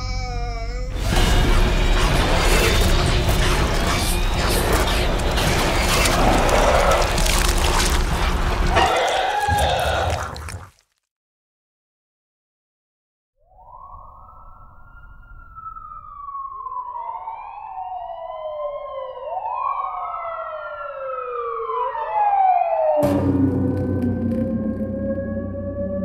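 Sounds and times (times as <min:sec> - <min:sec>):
sirens wailing: 0:01.6 - 0:10.1, 0:13.6 - 0:26.0.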